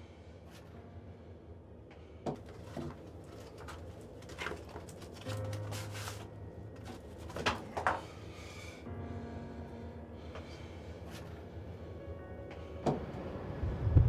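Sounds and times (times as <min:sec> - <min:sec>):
paper mask rustling: 0:02.4 - 0:08.2.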